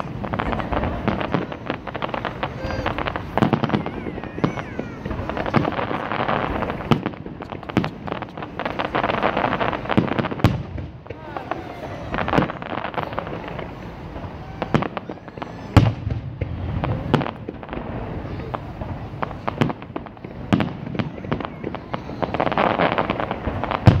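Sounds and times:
firework crackling: 0:00.0 - 0:24.0
firework shells bursting: 0:00.0 - 0:24.0.

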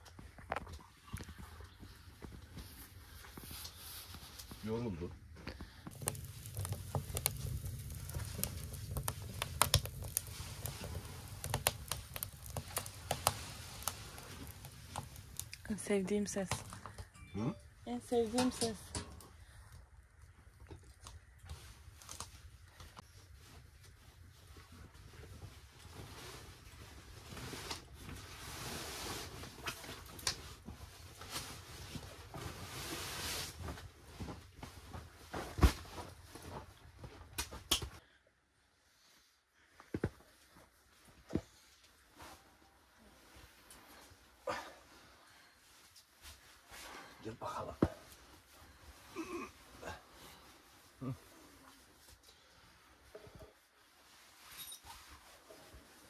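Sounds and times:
firewood crackling and popping: 0:00.0 - 0:38.0
stove low rumble: 0:05.5 - 0:16.8
sleeping bag rustling: 0:05.9 - 0:15.8.

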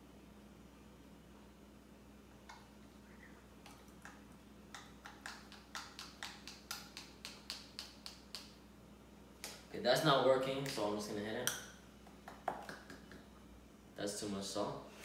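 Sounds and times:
salt shaker tapping: 0:04.8 - 0:08.5.

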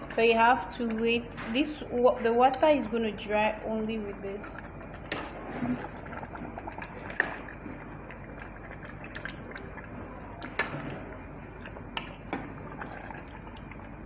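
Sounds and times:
spoon stirring stew in pot: 0:03.9 - 0:14.0.

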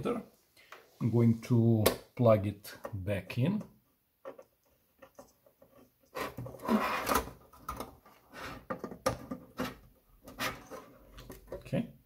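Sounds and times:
metal box scraping on table: 0:06.1 - 0:07.4.

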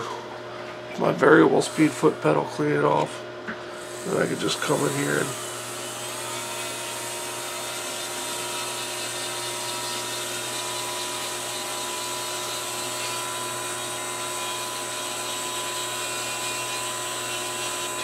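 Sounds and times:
rotary tool high whine: 0:00.0 - 0:18.0.

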